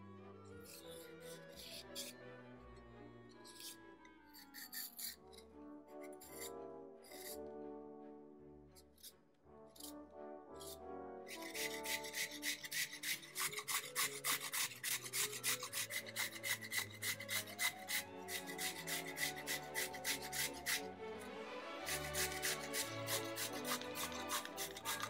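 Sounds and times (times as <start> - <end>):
vegetable grating on metal grater: 0.6 - 2.1, 3.5 - 5.4, 6.0 - 6.5, 7.1 - 7.4, 10.6 - 20.9, 21.7 - 25.0.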